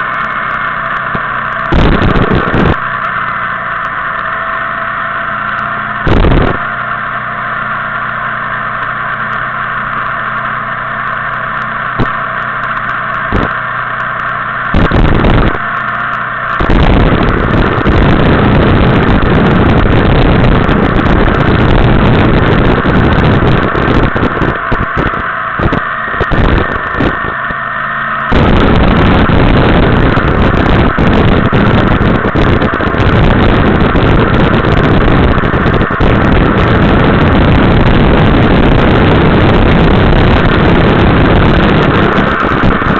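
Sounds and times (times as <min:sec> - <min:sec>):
motorcycle engine drone: 0:00.0 - 0:42.9
wind buffeting microphone: 0:01.0 - 0:03.4, 0:06.0 - 0:06.8, 0:13.2 - 0:13.7, 0:14.6 - 0:42.9.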